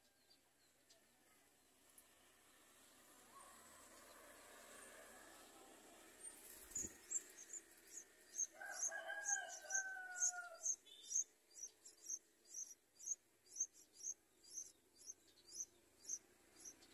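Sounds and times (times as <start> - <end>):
nestlings begging cheeps: 6.7 - 16.9
rooster crowing: 8.5 - 10.8.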